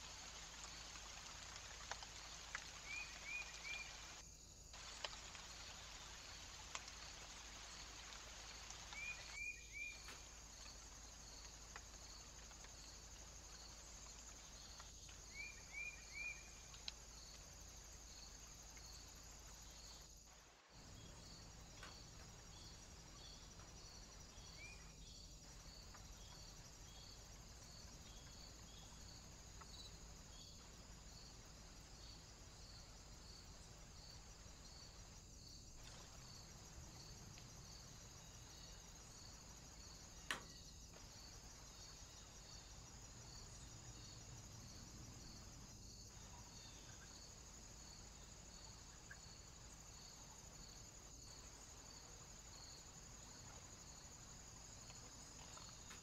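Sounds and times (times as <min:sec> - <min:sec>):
faint woodland hiss: 0:00.0 - 0:56.0
faint bird chirps: 0:15.3 - 0:16.7.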